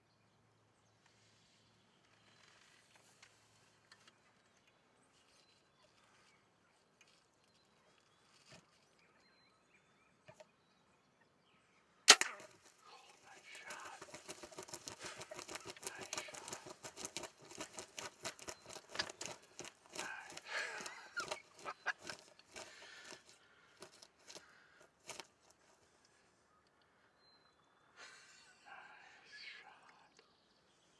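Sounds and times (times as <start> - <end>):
scattered clicks: 12.1 - 25.6
rustling and flapping: 12.2 - 25.9
hushed voice: 12.8 - 14.2, 28.4 - 30.2.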